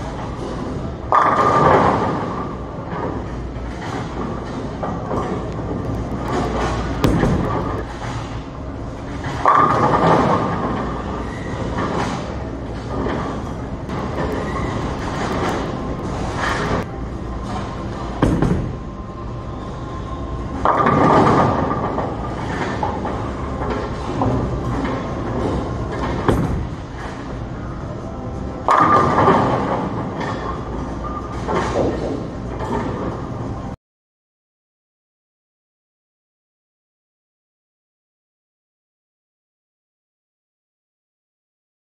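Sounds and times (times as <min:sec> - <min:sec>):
bowling balls rolling: 0:00.1 - 0:19.5, 0:20.3 - 0:27.8
bowling ball rolling on wooden lane: 0:03.9 - 0:07.9.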